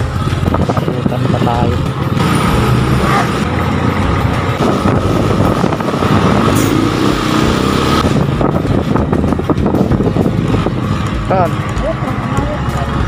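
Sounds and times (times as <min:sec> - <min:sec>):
motorcycle engine running: 0:00.0 - 0:13.0
wind and road noise: 0:00.0 - 0:13.0.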